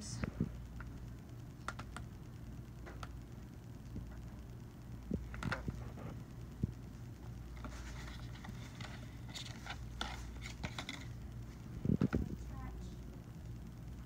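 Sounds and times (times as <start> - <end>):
packaging rustling: 7.5 - 11.2.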